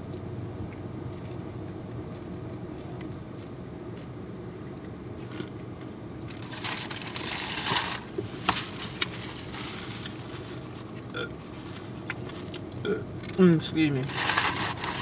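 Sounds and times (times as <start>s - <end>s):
low hum inside car: 0.0s - 15.0s
paper crinkling: 6.4s - 12.7s, 14.0s - 15.0s.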